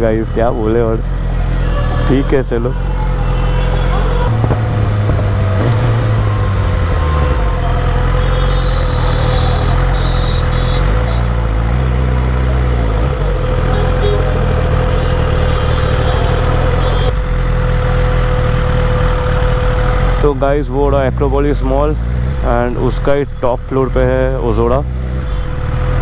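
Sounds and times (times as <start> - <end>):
motorcycle engine running at low speed: 2.8 - 26.0.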